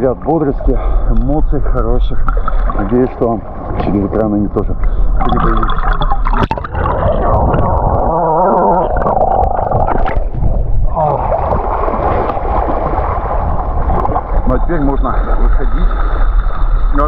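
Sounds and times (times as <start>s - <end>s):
sea water sloshing and gurgling: 0.0s - 17.0s.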